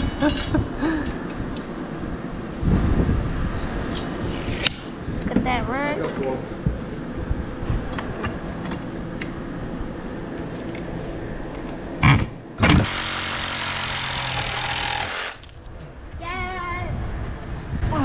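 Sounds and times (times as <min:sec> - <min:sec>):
reciprocating saw cutting aluminum: 0:12.0 - 0:15.5.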